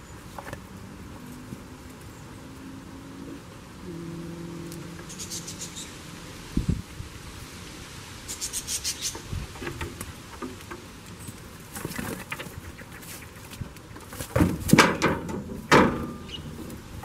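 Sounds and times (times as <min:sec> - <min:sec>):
goats stepping in straw: 0:07.1 - 0:17.0
sharp knocks: 0:14.3 - 0:16.3.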